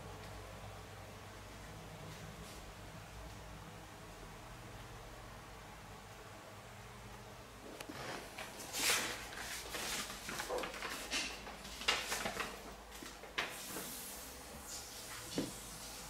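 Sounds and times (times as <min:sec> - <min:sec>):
soft rustling: 0:07.7 - 0:14.0.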